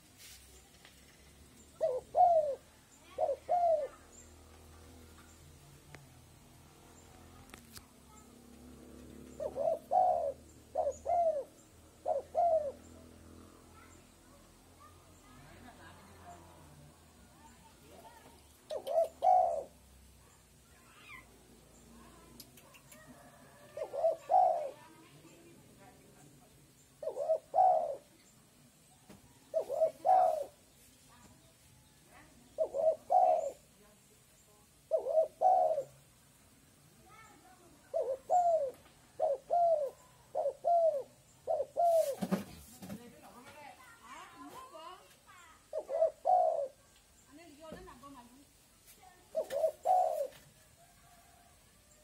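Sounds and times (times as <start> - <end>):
dove cooing: 1.6 - 5.2, 8.8 - 13.9, 17.4 - 19.9, 22.2 - 25.7, 26.9 - 28.3, 29.3 - 30.7, 32.4 - 33.8, 34.8 - 36.0, 37.8 - 42.4, 44.4 - 47.0, 49.2 - 51.5.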